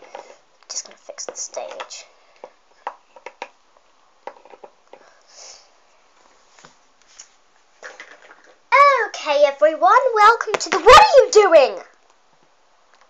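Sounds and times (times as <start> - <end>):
plastic toys clicking and tapping: 0.0 - 3.6, 4.2 - 5.1
breathy sniff: 5.0 - 5.8.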